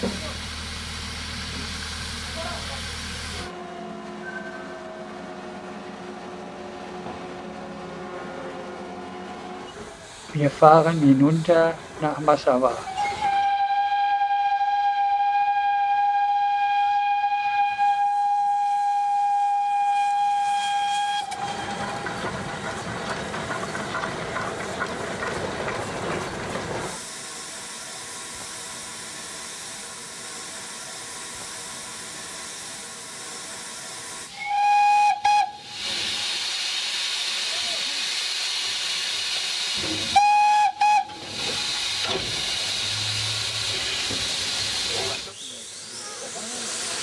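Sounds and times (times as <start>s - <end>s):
steam hissing: 0.0s - 3.5s, 9.8s - 22.8s, 25.8s - 47.0s
train running noise: 0.0s - 47.0s
steam locomotive whistle: 3.4s - 6.7s, 12.8s - 22.2s, 34.3s - 36.4s, 40.1s - 42.0s.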